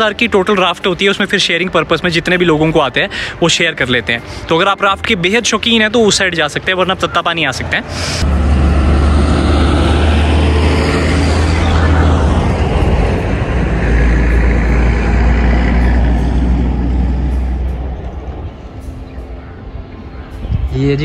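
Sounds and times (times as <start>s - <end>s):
tyre and road noise: 6.1s - 20.8s
bus engine drone: 7.0s - 21.0s.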